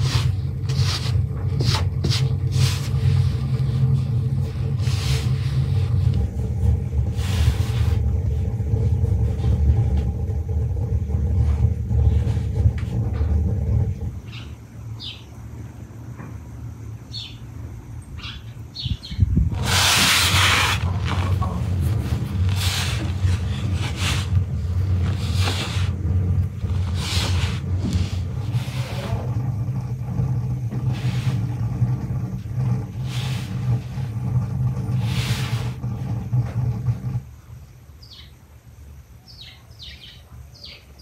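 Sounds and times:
hands rubbing dough on board: 0:00.0 - 0:09.6, 0:19.6 - 0:29.4
steady low rumble: 0:00.0 - 0:37.9.

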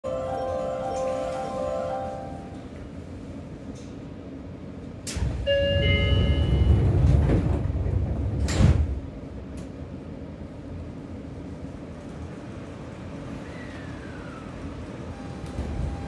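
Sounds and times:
train doors sliding shut: 0:04.9 - 0:09.9, 0:13.3 - 0:16.0.

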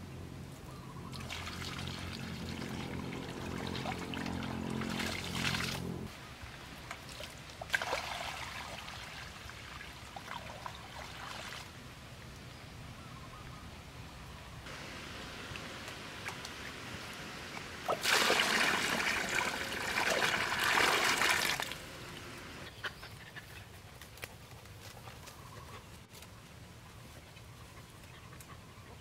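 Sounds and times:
low steady hum: 0:00.0 - 0:06.5, 0:12.4 - 0:22.8
water pouring into pool: 0:01.2 - 0:06.1, 0:07.1 - 0:11.7, 0:14.7 - 0:22.5.

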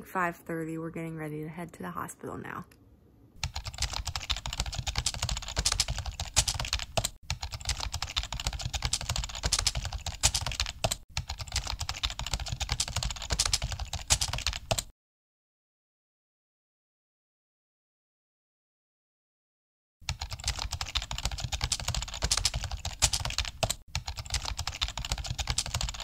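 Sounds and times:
keyboard typing: 0:03.4 - 0:14.9, 0:20.1 - 0:26.0.

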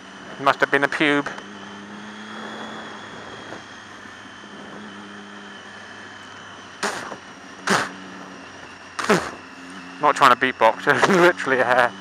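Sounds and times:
motorcycle engine cruising: 0:00.0 - 0:12.0.

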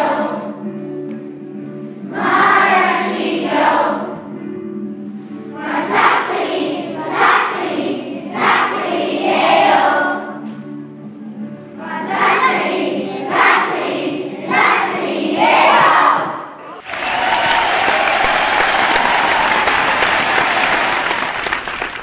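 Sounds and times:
children singing together: 0:00.0 - 0:00.8, 0:02.0 - 0:04.4, 0:05.3 - 0:10.5, 0:11.4 - 0:16.7.

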